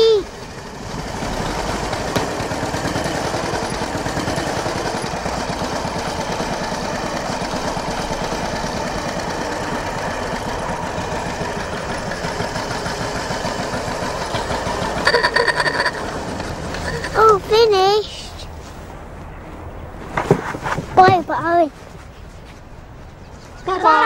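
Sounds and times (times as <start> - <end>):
motorcycle engine chugging: 0.0 - 18.0.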